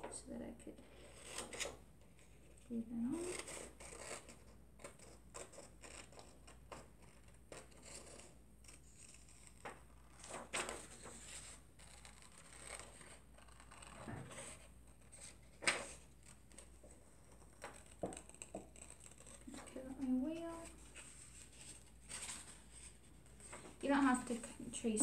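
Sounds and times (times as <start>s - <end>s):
paper rustling: 7.5s - 25.0s.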